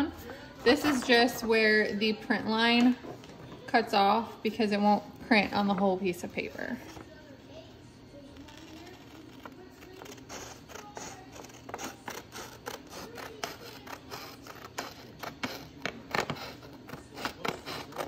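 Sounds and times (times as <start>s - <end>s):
scissors snipping paper: 8.4s - 18.0s.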